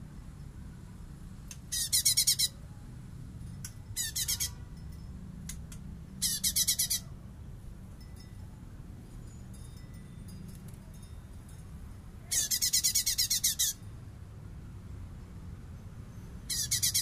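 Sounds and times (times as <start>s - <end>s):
bird singing rapid high notes: 1.7s - 2.6s, 3.9s - 4.7s, 6.2s - 7.1s, 12.3s - 13.8s, 16.4s - 17.0s.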